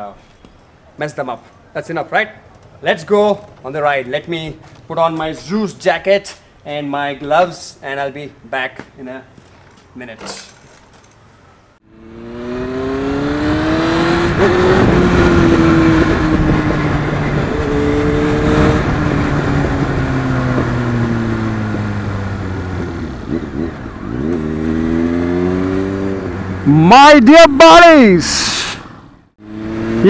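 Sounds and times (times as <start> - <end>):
motorcycle engine revving: 11.9 - 26.8, 29.4 - 30.0.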